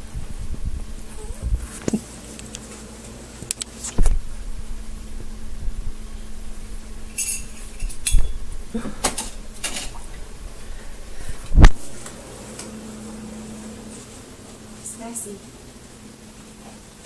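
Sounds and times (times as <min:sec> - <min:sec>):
steady low hum: 0:00.0 - 0:17.0
dishes and utensils clinking: 0:07.1 - 0:08.4.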